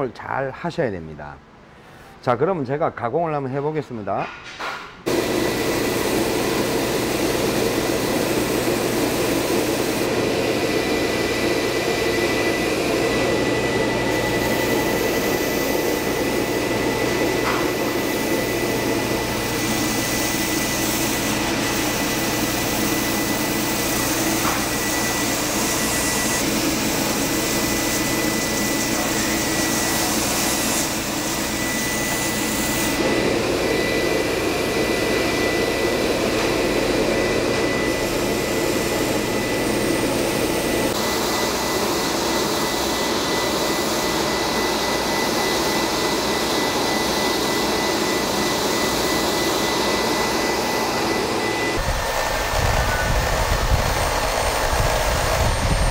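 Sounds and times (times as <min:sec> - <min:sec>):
belt sander running with whine: 0:05.1 - 0:55.9.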